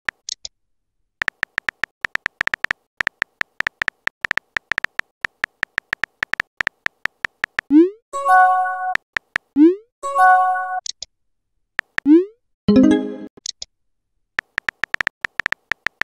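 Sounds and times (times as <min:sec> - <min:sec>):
phone keyboard typing clicks: 0:01.2 - 0:07.7, 0:08.9 - 0:09.5, 0:11.8 - 0:12.1, 0:14.4 - 0:16.0.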